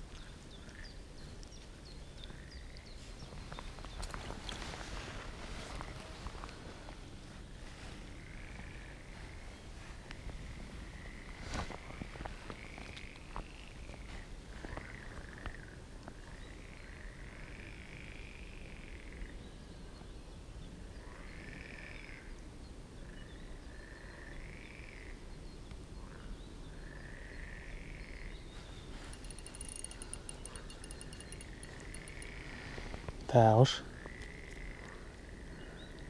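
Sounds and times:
fast high ticking: 29.0 - 32.5
frogs calling: 29.0 - 36.0.

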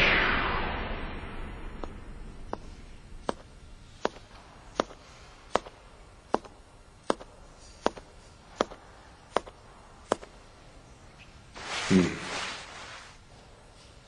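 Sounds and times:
hard-soled footsteps: 2.5 - 10.3.

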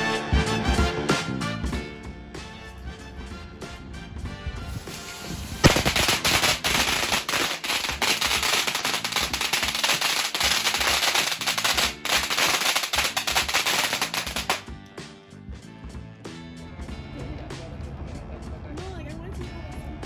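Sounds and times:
background music: 0.0 - 20.0
firecrackers cracking rapidly: 4.7 - 14.7.

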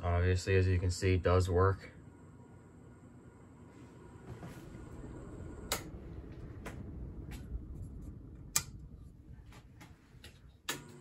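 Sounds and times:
ceiling fan rumble: 0.0 - 11.0.

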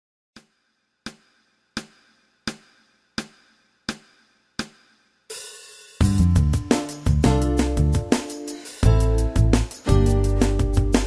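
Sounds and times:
band with drums and bass: 5.3 - 11.0.

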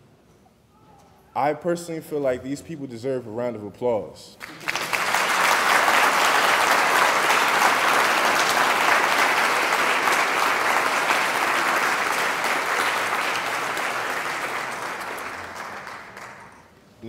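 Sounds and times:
large audience applauding: 4.4 - 16.7.

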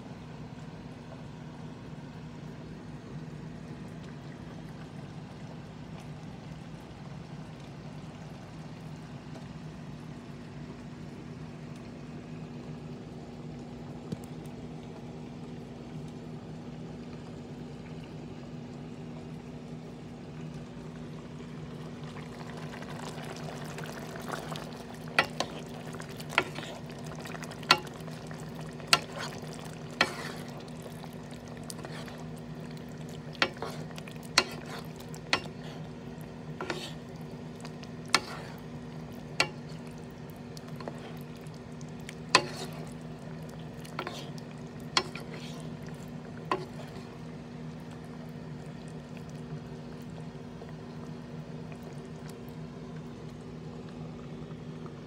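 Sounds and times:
steady low hum: 0.0 - 55.0
pot clicking and popping: 23.3 - 45.4.

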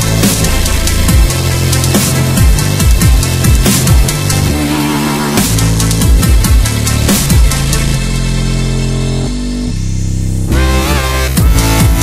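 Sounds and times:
electronic music bass notes: 0.0 - 12.0.

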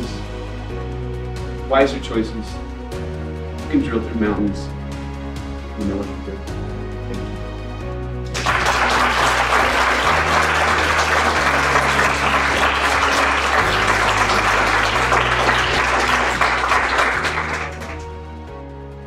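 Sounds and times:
background music: 0.0 - 19.0
audience applauding: 8.3 - 18.2.

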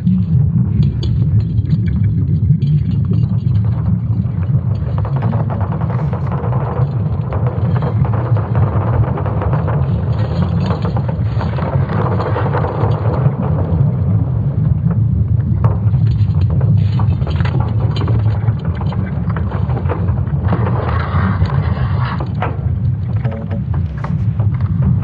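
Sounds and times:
deep continuous rumble: 0.0 - 25.0
scattered crackles: 0.0 - 25.0.

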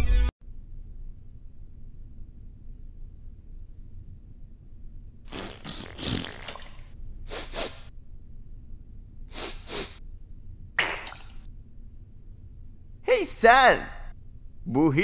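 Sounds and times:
loud nose sniffing: 5.3 - 6.4, 7.3 - 7.9, 9.3 - 10.0.

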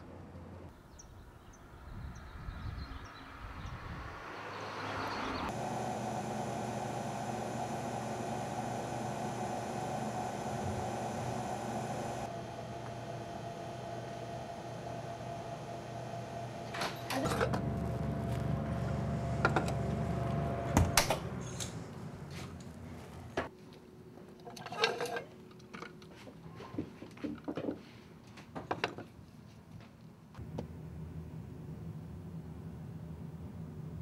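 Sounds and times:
steady equipment hum: 5.5 - 24.1
low machine hum with knocks: 10.6 - 10.9, 16.6 - 21.4.

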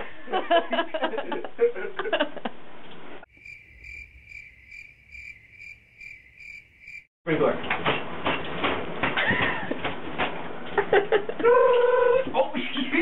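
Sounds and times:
cricket chirping: 3.3 - 7.1.

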